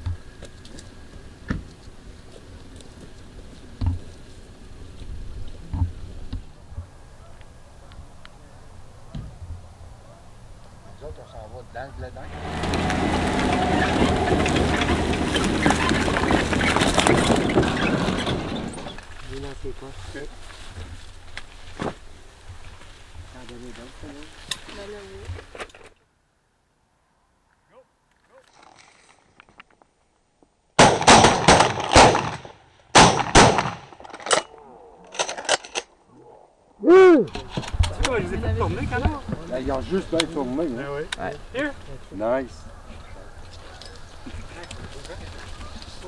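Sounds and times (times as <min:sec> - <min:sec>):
truck engine idling: 0:12.2 - 0:19.0
trailer rattling and clattering: 0:12.2 - 0:19.6
shotgun blasts: 0:30.8 - 0:33.9.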